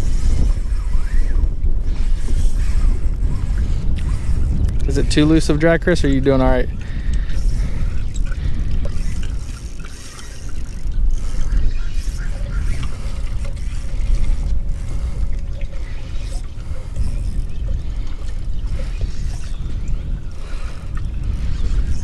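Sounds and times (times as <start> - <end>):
fishing reel drag ratcheting: 0.0 - 22.0
steady low rumble: 0.0 - 22.0.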